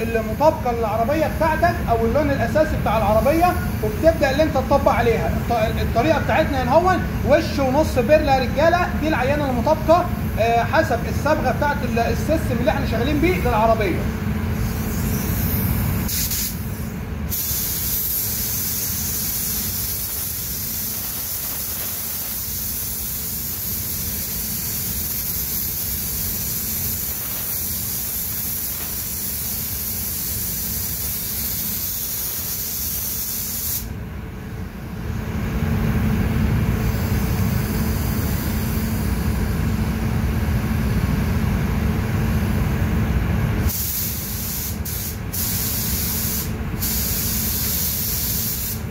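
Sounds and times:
spray gun hissing: 14.6 - 33.9, 43.7 - 48.9.

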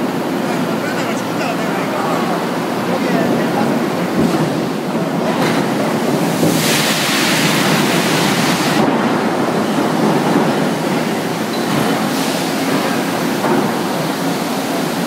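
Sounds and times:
rolling mill industrial noise: 0.0 - 15.0
steam and water spray hissing: 6.0 - 8.8, 11.9 - 15.0.

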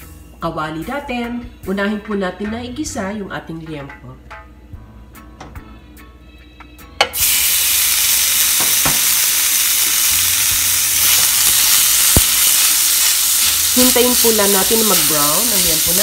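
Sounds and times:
pork sizzling in frying pan: 7.1 - 16.0.

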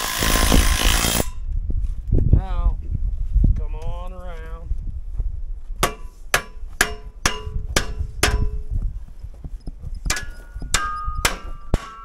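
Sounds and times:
hammer striking metal: 5.8 - 8.7, 10.1 - 12.0.

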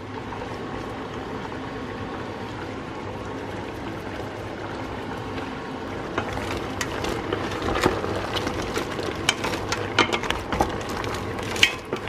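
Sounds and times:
food simmering and bubbling in a pot: 0.0 - 12.0
wooden spoon stirring: 5.9 - 12.0
crab shells clattering against pot: 6.1 - 12.0.

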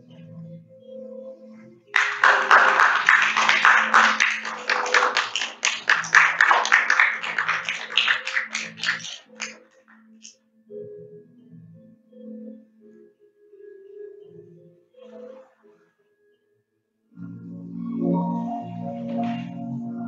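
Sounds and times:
soft ambient music with bell tones: 0.0 - 2.0, 9.6 - 20.0
audience applauding: 2.0 - 9.7.

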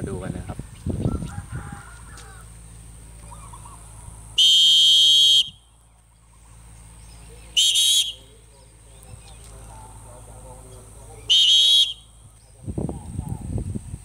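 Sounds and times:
shrill whistle blast: 4.4 - 5.6, 7.6 - 8.2, 11.3 - 12.1.

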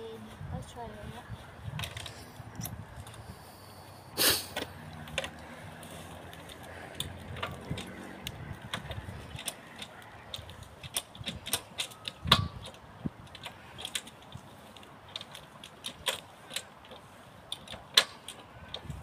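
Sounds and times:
motorcycle clicks and knocks: 4.5 - 19.0.

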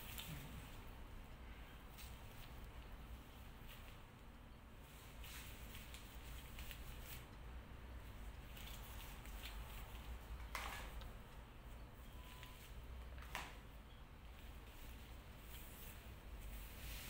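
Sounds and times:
low room hum: 0.0 - 17.0
hair rustling: 14.4 - 17.0.

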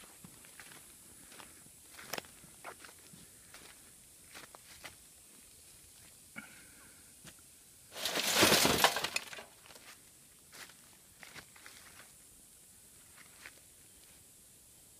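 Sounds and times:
glass breaking and crackling: 8.0 - 9.5.

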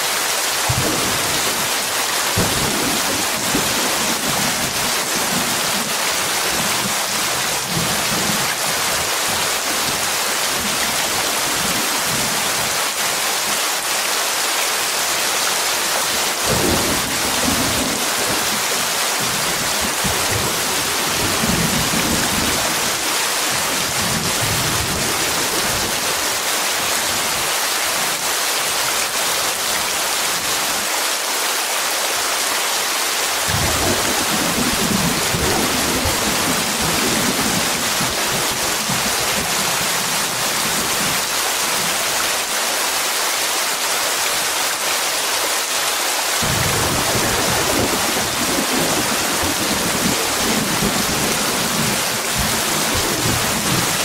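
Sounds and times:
heavy rain hissing: 0.0 - 54.0
low rolls of thunder: 2.4 - 5.4, 46.4 - 51.8.

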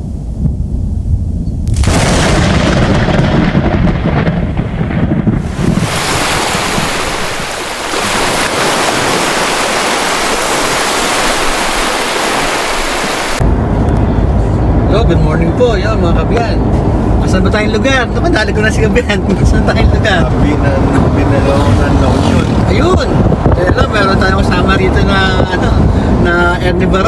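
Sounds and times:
low rumble of thunder: 0.0 - 9.1
heavy rain hissing: 5.4 - 13.4.

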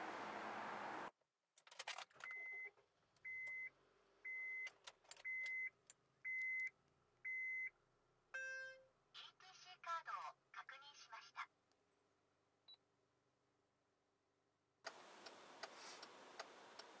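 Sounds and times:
keys and door clicks and rattles: 1.6 - 2.4, 4.7 - 5.5
car warning chime beeping: 2.3 - 6.7.

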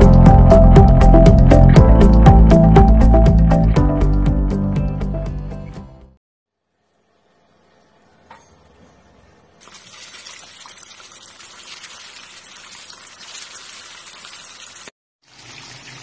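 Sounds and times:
fish sizzling in hot oil: 9.6 - 16.0.

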